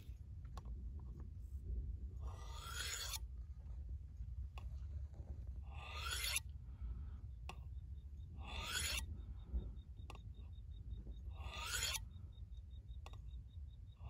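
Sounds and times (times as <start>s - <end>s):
knife scraping on honing rod: 2.3s - 3.2s, 5.7s - 6.5s, 8.4s - 9.1s, 11.4s - 12.0s.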